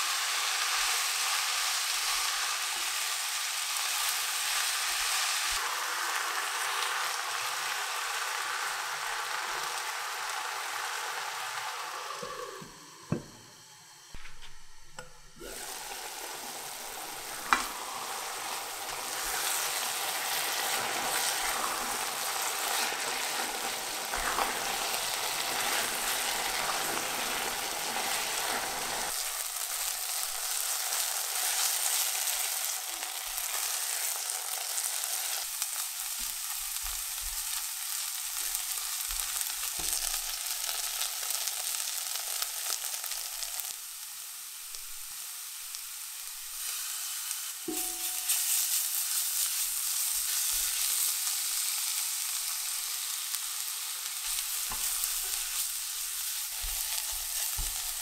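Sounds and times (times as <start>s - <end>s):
onions sizzling in oil: 0.0s - 58.0s
spatula scraping pot: 18.4s - 29.1s.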